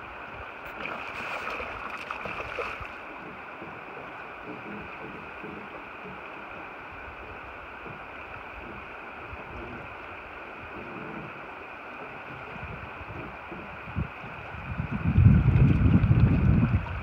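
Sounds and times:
river water rushing: 0:00.0 - 0:14.6
wind buffeting microphone: 0:12.2 - 0:17.0.

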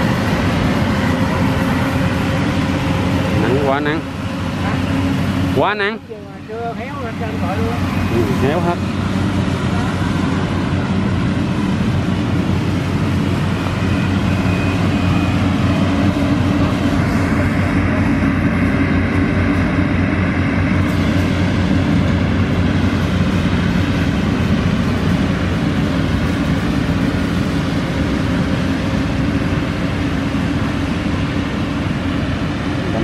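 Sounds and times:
combine harvester drone: 0:00.0 - 0:33.0.

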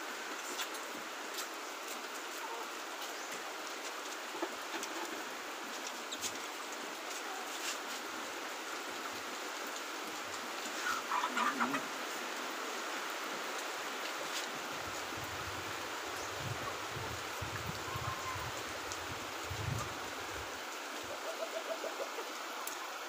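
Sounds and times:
background hiss: 0:00.0 - 0:23.0
chicken clucking: 0:10.8 - 0:11.9, 0:21.1 - 0:22.8.

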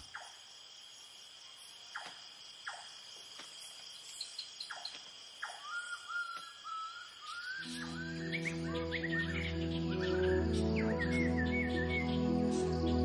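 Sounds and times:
crickets trilling: 0:00.0 - 0:13.0
short insect chirps: 0:00.0 - 0:13.0
wavering whistled call: 0:05.4 - 0:13.0.

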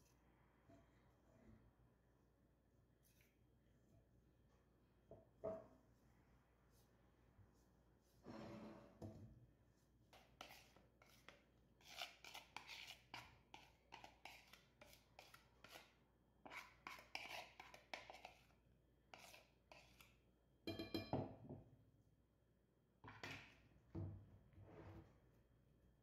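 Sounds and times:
hands mixing food in bowl: 0:10.1 - 0:18.6.

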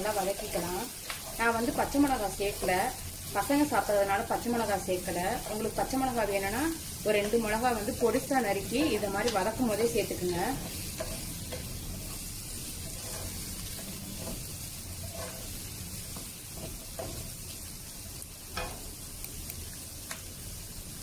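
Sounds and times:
vegetables sizzling in oil: 0:00.0 - 0:21.0
spatula scraping and tapping pan: 0:08.8 - 0:17.5, 0:18.5 - 0:19.0.

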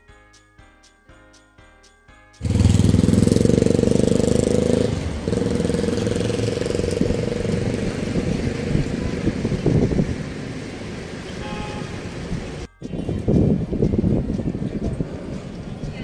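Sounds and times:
vehicle engine running: 0:02.4 - 0:12.7
traffic noise: 0:02.4 - 0:16.0.

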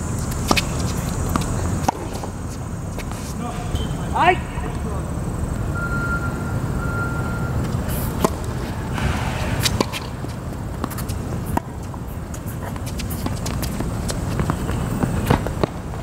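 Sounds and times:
tennis ball bouncing: 0:00.2 - 0:03.3, 0:07.6 - 0:16.0.

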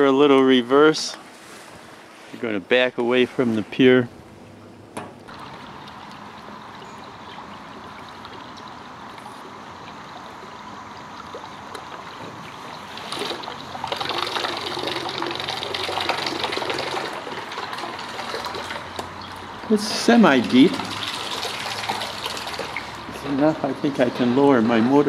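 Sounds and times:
water trickling around a hull: 0:01.2 - 0:02.4, 0:05.2 - 0:23.2.

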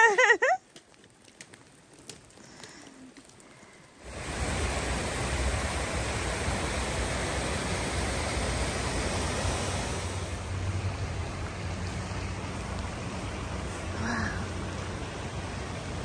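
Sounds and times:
creek rushing over rocks: 0:03.2 - 0:16.0.

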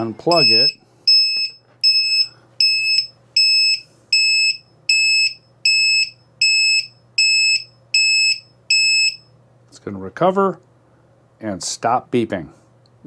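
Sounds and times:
high-pitched electronic beeps: 0:00.0 - 0:09.2.

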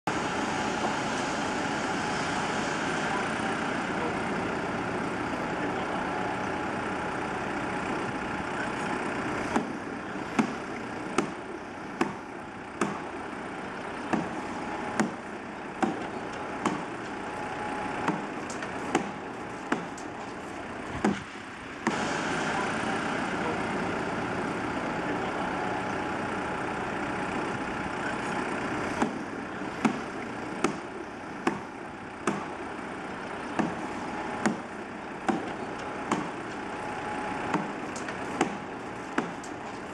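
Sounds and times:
road traffic hum: 0:00.0 - 0:39.9
machinery hum: 0:00.1 - 0:39.9
hammer strikes: 0:10.3 - 0:11.4, 0:12.0 - 0:13.1, 0:14.1 - 0:15.2, 0:15.8 - 0:17.2, 0:18.0 - 0:20.4, 0:21.0 - 0:22.0, 0:29.0 - 0:29.2, 0:29.8 - 0:32.6, 0:33.5 - 0:36.7, 0:37.4 - 0:39.9.

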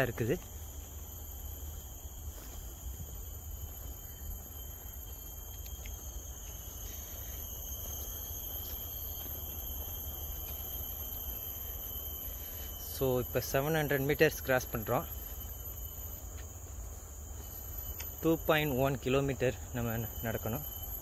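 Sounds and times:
high-pitched insect chorus: 0:00.0 - 0:21.0
faint ticks: 0:05.5 - 0:06.2, 0:17.9 - 0:18.2.

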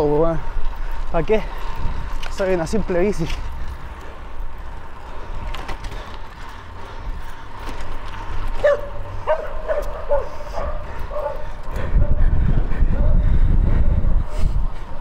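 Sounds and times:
wind rumble on microphone: 0:00.3 - 0:06.1, 0:08.0 - 0:15.0
dog barking: 0:08.6 - 0:11.5.

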